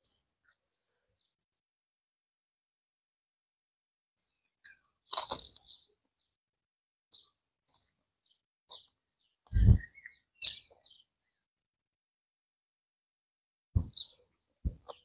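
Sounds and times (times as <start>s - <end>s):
crunchy bite: 4.6s - 5.7s
dull thump: 13.8s - 14.0s.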